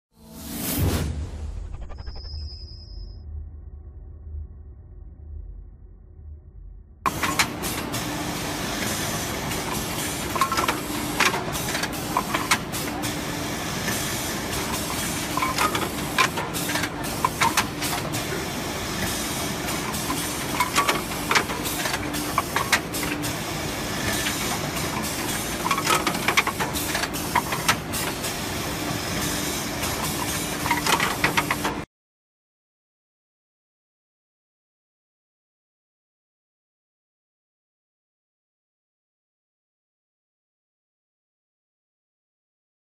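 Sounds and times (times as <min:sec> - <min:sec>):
drilling machine hiss and hum: 0:07.1 - 0:31.6.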